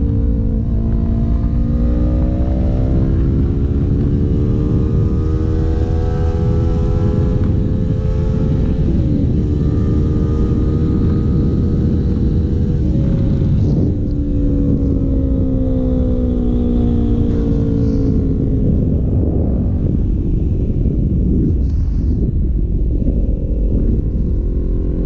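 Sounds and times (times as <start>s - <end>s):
motorcycle engine running: 0.0s - 25.0s
wind rumble on microphone: 0.0s - 25.0s.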